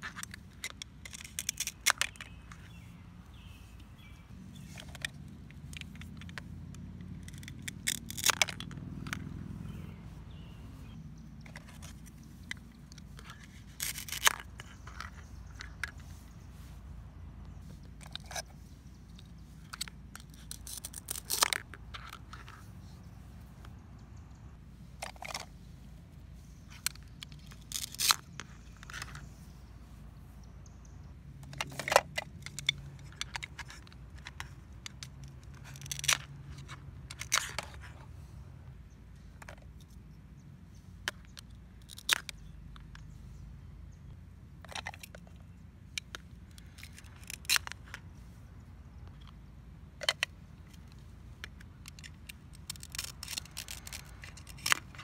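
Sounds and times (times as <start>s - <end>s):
plastic toy pieces handled: 0.0s - 23.8s, 24.4s - 30.4s, 31.3s - 38.4s, 39.1s - 40.2s, 40.8s - 43.3s, 44.5s - 55.0s
velcro ripping apart: 52.5s - 54.8s.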